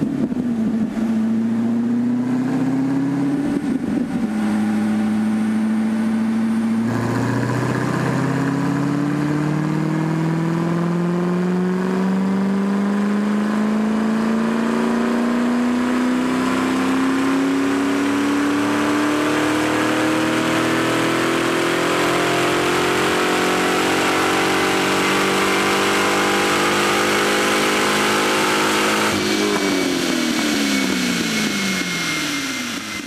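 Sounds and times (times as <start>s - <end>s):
car engine revving under load: 0.0s - 33.0s
dyno rollers slowing: 3.6s - 8.9s.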